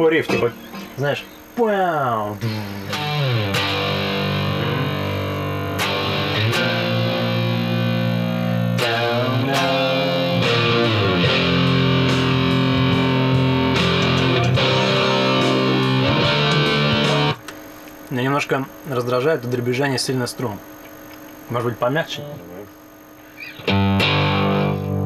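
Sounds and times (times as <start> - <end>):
electric guitar chords: 0.0 - 18.1, 23.2 - 25.0.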